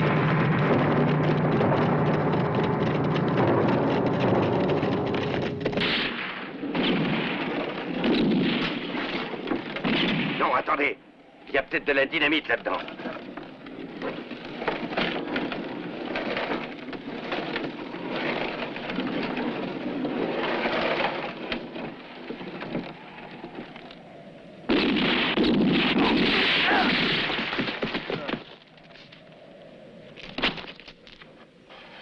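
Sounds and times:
loud rush of noise: 0:00.0 - 0:06.7
rumbling noisy background: 0:00.0 - 0:32.0
revolver and rifle shots: 0:05.8 - 0:10.7, 0:24.7 - 0:28.1.

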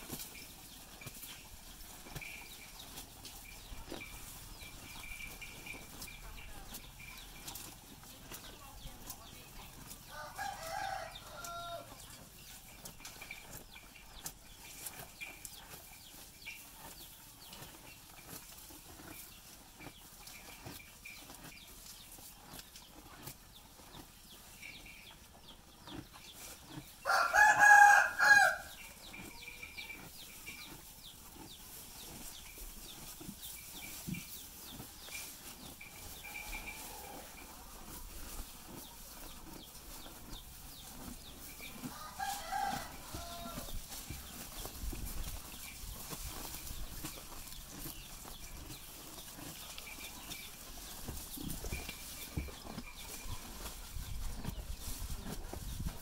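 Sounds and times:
rooster crowing: 0:10.1 - 0:11.9, 0:27.0 - 0:28.8, 0:41.9 - 0:43.7.

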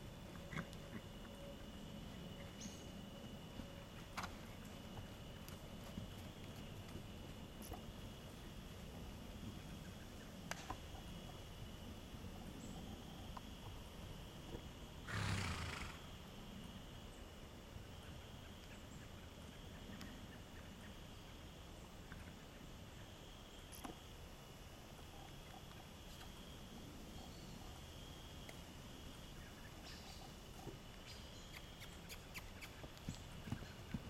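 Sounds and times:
horse snorting: 0:15.0 - 0:16.1.

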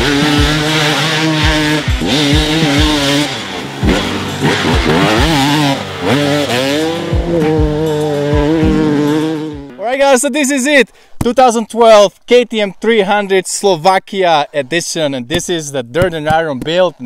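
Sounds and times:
dirt bike engine revving: 0:00.0 - 0:09.8
music: 0:00.0 - 0:10.0.

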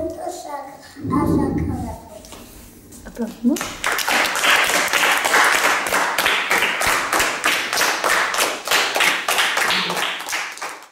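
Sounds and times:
children applauding: 0:03.8 - 0:10.9.

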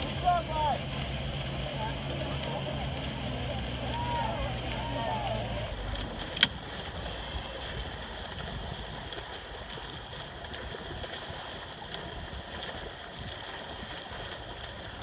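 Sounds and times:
water on open sea: 0:00.0 - 0:15.0
wind on microphone: 0:07.0 - 0:15.0.

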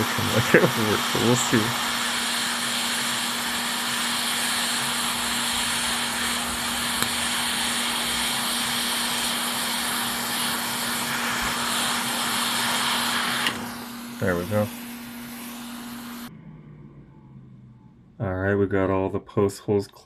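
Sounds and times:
hot air hissing from nozzle: 0:00.0 - 0:16.3
low steady hum: 0:13.8 - 0:20.0.

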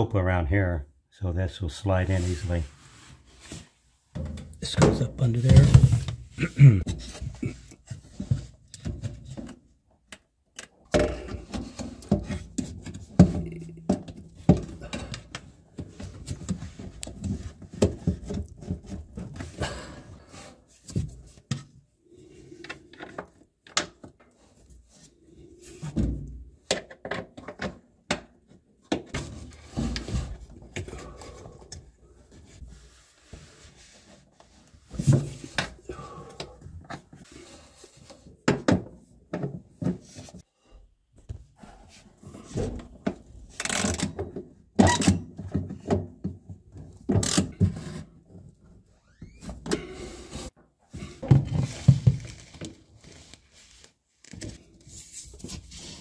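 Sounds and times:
plastic parts knocking and scraping: 0:04.2 - 0:09.7, 0:10.6 - 0:19.6, 0:25.8 - 0:31.9, 0:49.5 - 0:53.3.

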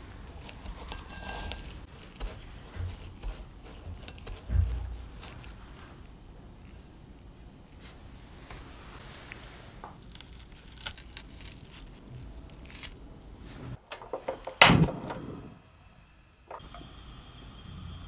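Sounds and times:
breadcrumbs crackling and rustling: 0:00.0 - 0:06.9, 0:07.8 - 0:13.6.

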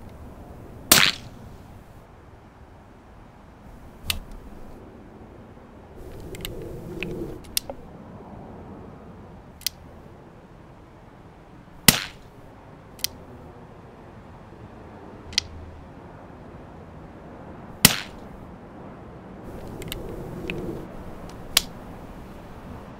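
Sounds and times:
sharp clicks: 0:04.0 - 0:04.5, 0:06.0 - 0:07.8, 0:09.6 - 0:09.8, 0:13.0 - 0:13.2, 0:15.3 - 0:15.6, 0:19.5 - 0:21.8.

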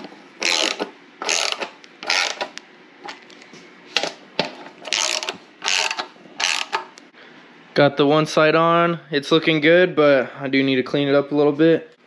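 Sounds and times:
ratchet wrench clicking: 0:00.4 - 0:02.6, 0:04.9 - 0:07.0.

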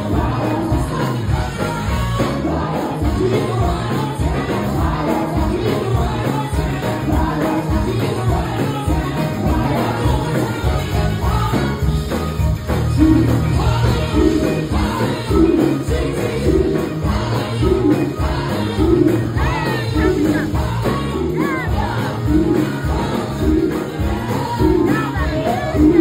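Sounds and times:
women singing together: 0:00.0 - 0:12.1, 0:12.9 - 0:26.0
live band with electric guitar: 0:00.0 - 0:26.0.

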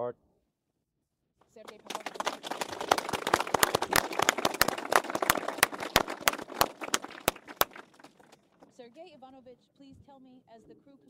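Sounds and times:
small group applauding: 0:01.5 - 0:08.8.

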